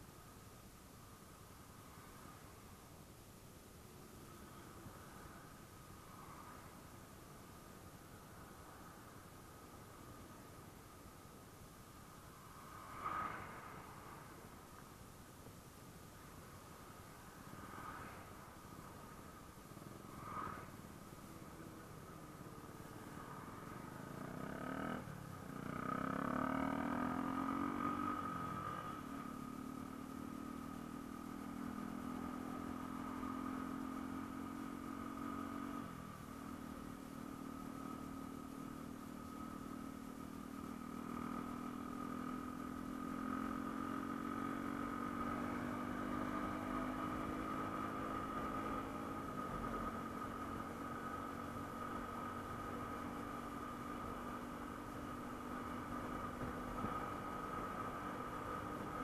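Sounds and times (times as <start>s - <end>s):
motorcycle engine accelerating: 24.0s - 39.0s, 40.7s - 59.0s.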